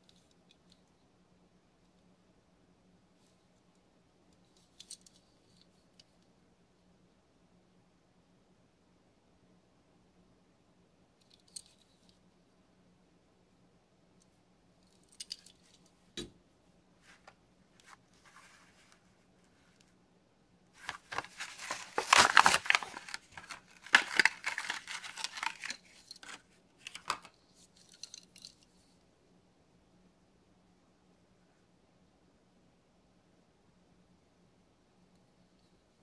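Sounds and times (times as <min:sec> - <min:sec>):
card tearing: 0:20.8 - 0:27.3
plastic crackling: 0:20.8 - 0:27.3
faint clicks and rustles: 0:20.8 - 0:29.0.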